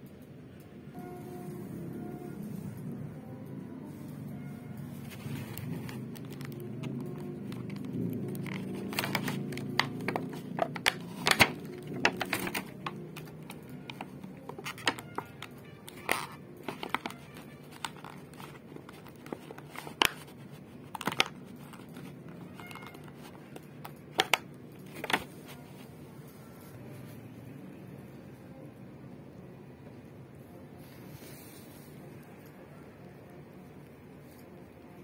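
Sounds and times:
plastic packaging crackling: 4.9s - 25.9s.

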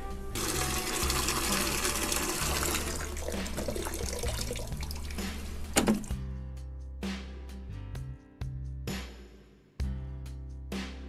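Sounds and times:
water running into plastic bucket: 0.4s - 6.1s.

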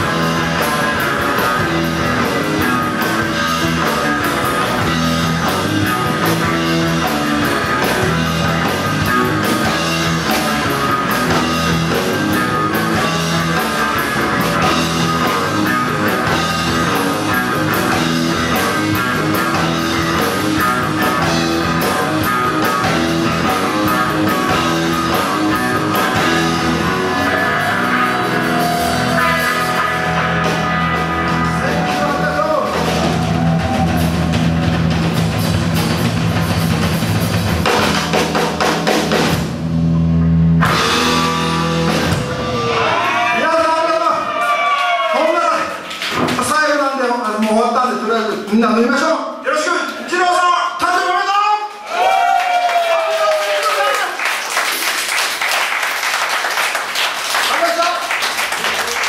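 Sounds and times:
drum kit: 0.0s - 45.0s
electric guitars: 0.0s - 46.4s
bass guitar: 0.0s - 49.0s.

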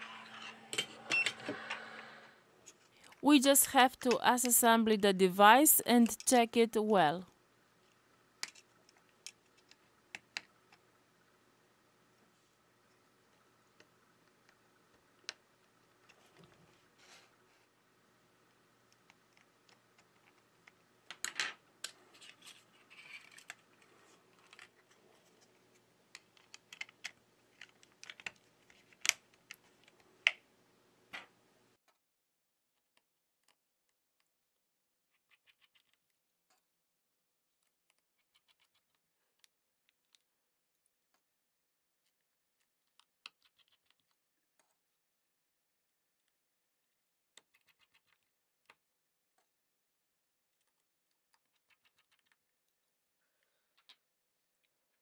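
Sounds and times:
plastic parts clicking together: 26.1s - 30.4s.

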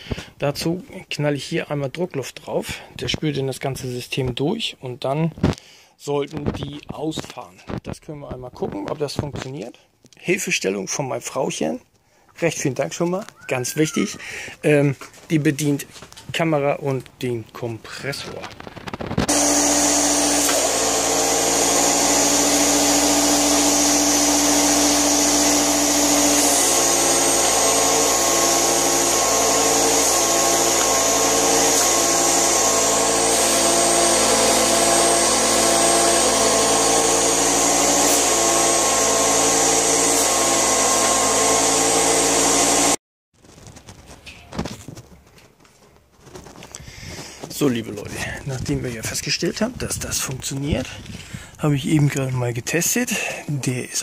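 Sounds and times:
air compressor running: 19.2s - 43.0s.

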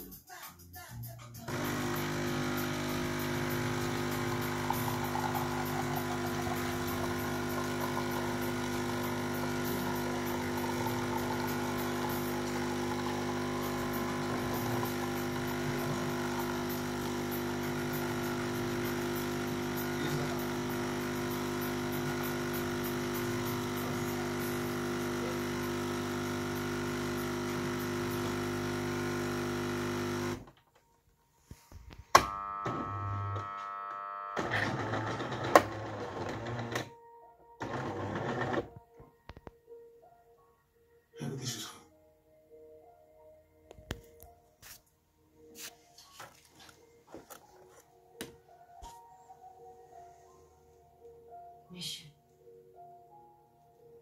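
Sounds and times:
coffee machine pump humming: 1.5s - 30.5s, 32.1s - 36.9s, 37.6s - 38.7s.

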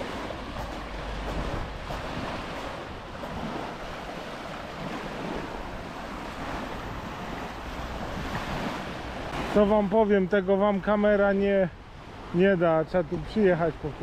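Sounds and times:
wind rumbling on microphone: 0.0s - 9.6s
sea waves washing on shore: 0.0s - 14.0s.

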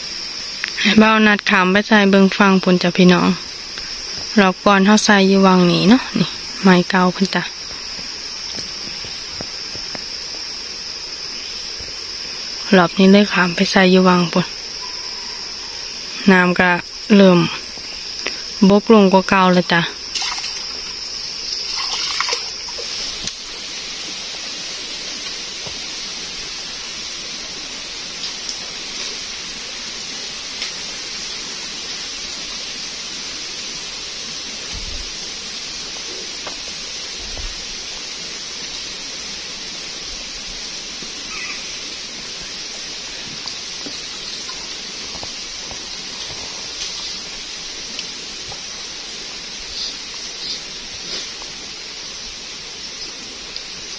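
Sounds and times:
stream water running: 0.0s - 53.9s.

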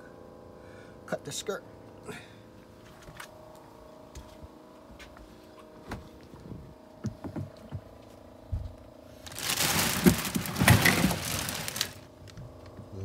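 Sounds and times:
bag of ice crackling: 9.2s - 12.3s.

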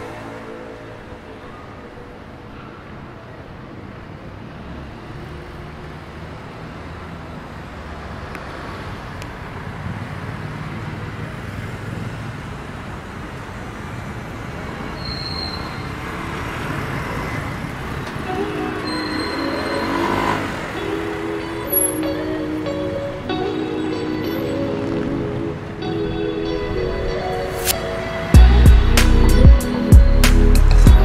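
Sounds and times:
motor scooter passing: 0.0s - 1.9s, 15.7s - 29.9s
traffic rumble: 0.0s - 31.0s
brief high squeak: 14.9s - 15.9s, 18.8s - 20.3s.

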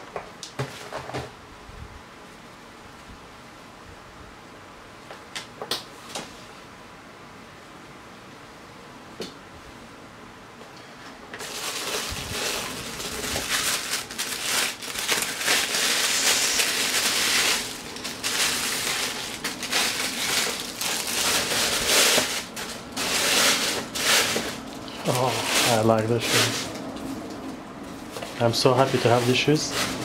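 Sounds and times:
tissue paper crinkling: 11.4s - 26.8s, 28.2s - 30.0s.

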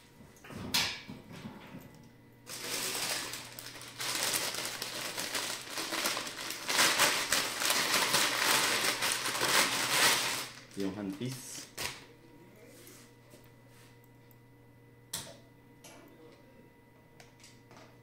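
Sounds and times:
plastic packaging crinkling: 2.5s - 12.0s.

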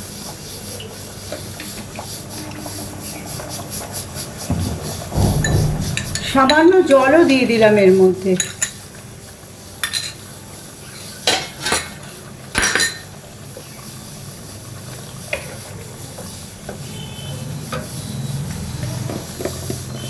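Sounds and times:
curry simmering in pan: 0.0s - 5.1s, 8.4s - 20.0s
kitchen utensils clattering: 3.3s - 8.9s, 9.8s - 10.2s, 11.2s - 13.2s.

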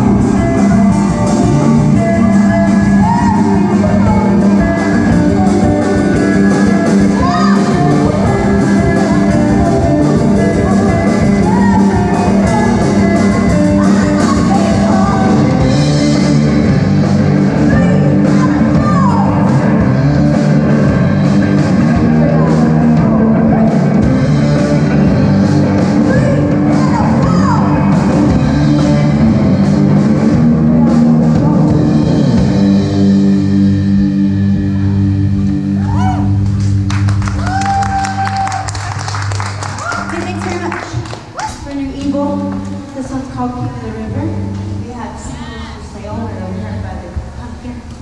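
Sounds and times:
live rock band playing: 0.0s - 41.4s
woman singing: 2.7s - 15.8s, 30.6s - 32.3s.

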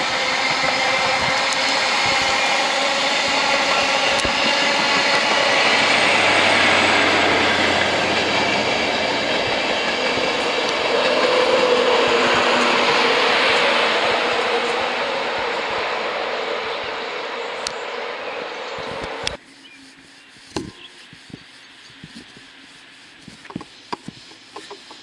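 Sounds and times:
rhythmic rail clatter: 0.0s - 19.4s
train wheels rushing on rail: 0.0s - 19.4s
low train hum: 0.0s - 25.0s.

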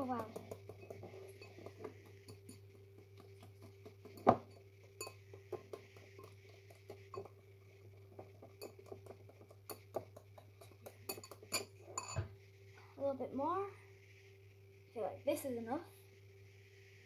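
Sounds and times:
utensil scraping bowl: 0.0s - 12.3s
knock on bowl: 3.6s - 4.6s.

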